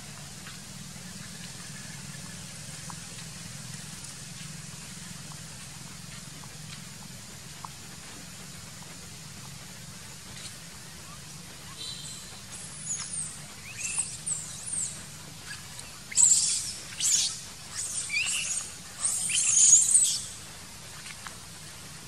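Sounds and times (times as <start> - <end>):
macaques squealing and chirping: 11.7 - 20.4.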